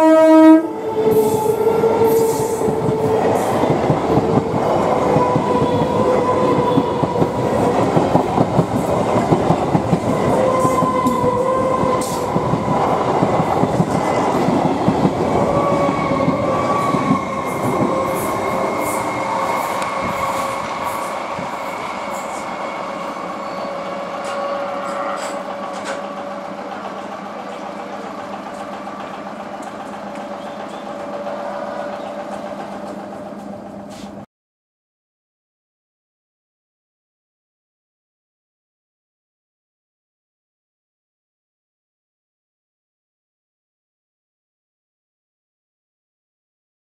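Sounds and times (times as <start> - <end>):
high train whine: 0.0 - 34.3
train wheels rumbling and clattering: 0.8 - 34.2.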